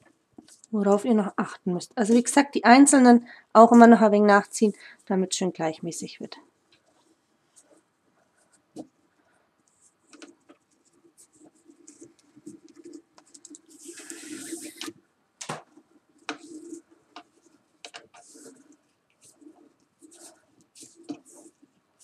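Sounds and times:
cord rubbing and scraping: 6.7 - 22.0
swishing scrape: 13.7 - 14.9.

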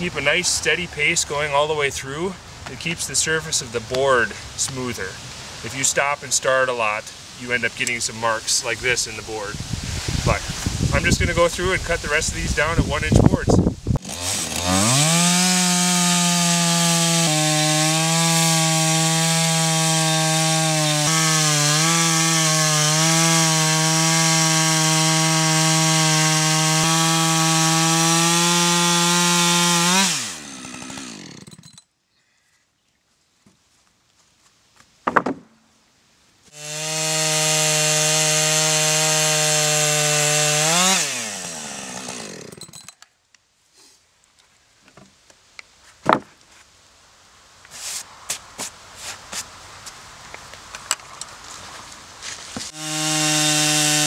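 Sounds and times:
chainsaw engine at full throttle: 14.0 - 31.7, 36.5 - 42.7, 52.7 - 54.0.

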